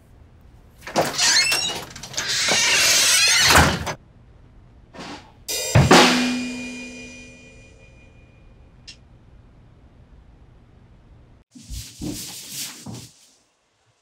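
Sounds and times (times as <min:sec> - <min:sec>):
drum kit crashing: 0:05.0 - 0:07.6
bass drum and cymbal hit: 0:05.5 - 0:08.0.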